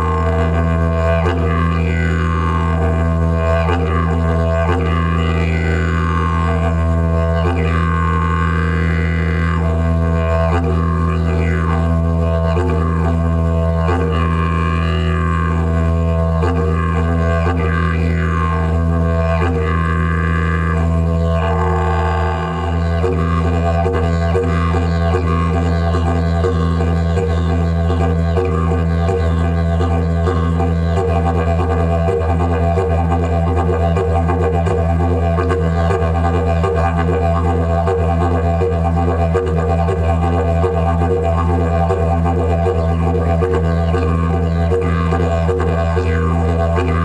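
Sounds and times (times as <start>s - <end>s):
didgeridoo drone: 0.0s - 47.0s.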